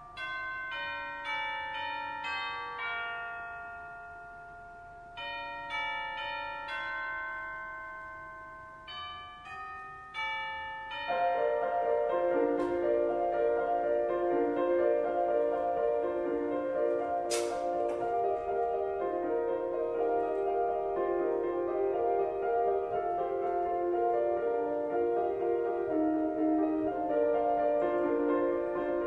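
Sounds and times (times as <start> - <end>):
bell chimes: 0.0 - 25.2.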